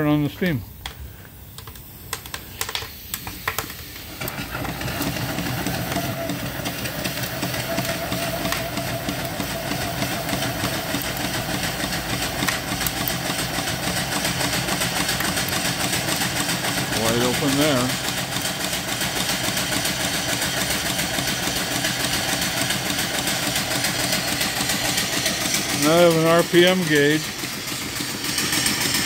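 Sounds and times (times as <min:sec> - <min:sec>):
steam engine hissing exhaust: 0:00.0 - 0:29.0
steam valve clicks: 0:00.8 - 0:16.9.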